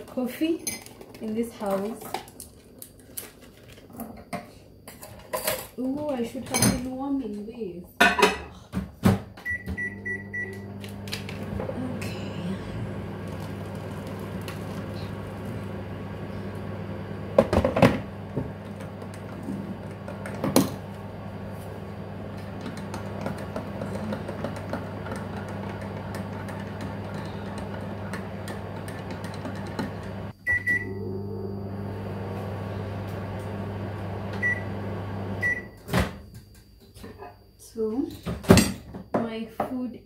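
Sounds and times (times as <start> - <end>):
microwave oven humming: 9.1 - 37.0
microwave beep: 9.4 - 12.2, 27.2 - 35.9.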